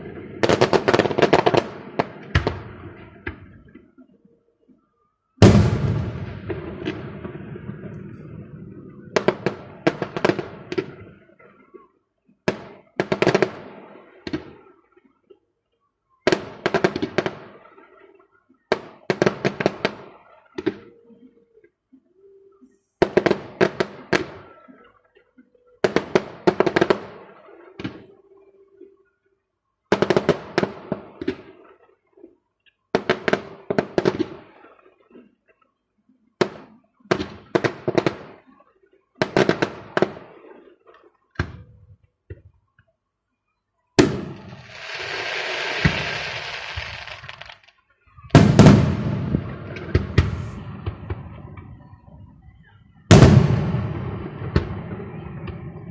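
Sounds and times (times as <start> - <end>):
fireworks bangs and crackles: 0.0 - 3.9, 5.4 - 11.7, 12.4 - 14.8, 16.2 - 21.0, 25.8 - 28.2, 29.9 - 32.0, 32.9 - 35.4, 36.4 - 42.5, 44.0 - 55.9
fireworks crackling fizz: 44.0 - 51.5.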